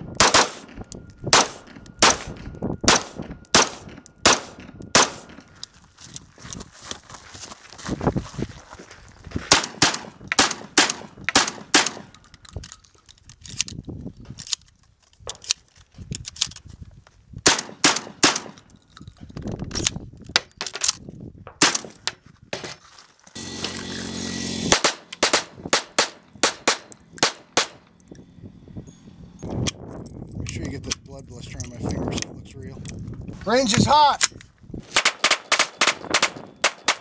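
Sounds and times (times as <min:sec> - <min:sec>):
gunshots: 0:00.2 - 0:00.7, 0:01.3 - 0:05.4, 0:09.5 - 0:12.1, 0:17.5 - 0:18.6, 0:24.7 - 0:27.8, 0:34.9 - 0:37.0
steady buzzing: 0:23.4 - 0:29.9.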